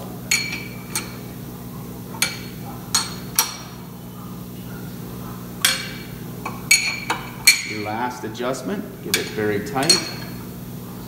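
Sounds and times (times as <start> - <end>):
wrench clinking on bolts: 9.1 - 10.4.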